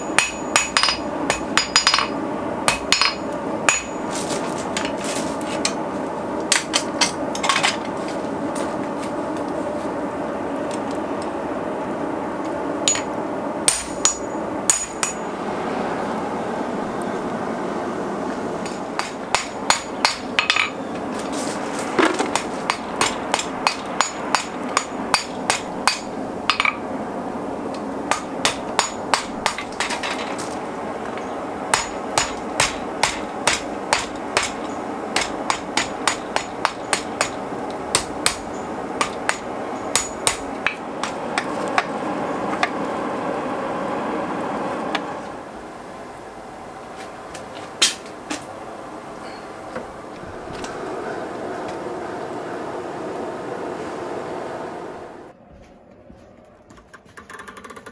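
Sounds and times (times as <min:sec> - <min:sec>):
hammer striking steel on anvil: 0:00.0 - 0:04.1, 0:13.7 - 0:15.3, 0:18.6 - 0:20.8, 0:22.2 - 0:26.8, 0:28.1 - 0:30.0, 0:31.7 - 0:41.9
steady rushing background: 0:00.0 - 0:56.4.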